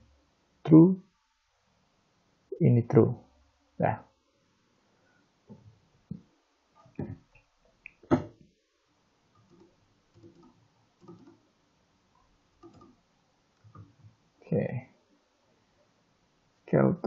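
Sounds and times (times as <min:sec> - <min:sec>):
keyboard and mouse clicks: 0:07.8 - 0:08.3, 0:09.4 - 0:11.4, 0:12.6 - 0:13.0.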